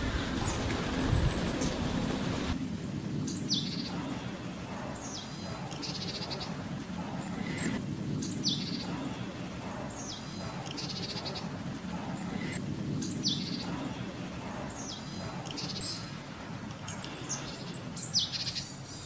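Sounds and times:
low steady background hum: 0.0 - 19.0.

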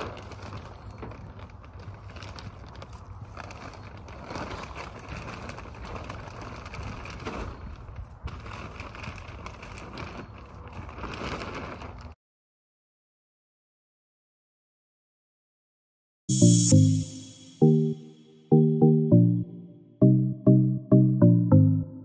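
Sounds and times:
plastic sheet rustling and crinkling: 0.0 - 12.2.

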